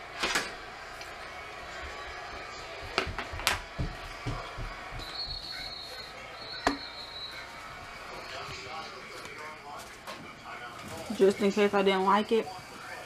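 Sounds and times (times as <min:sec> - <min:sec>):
kitchen knocks and clatters: 0:02.8 - 0:05.6.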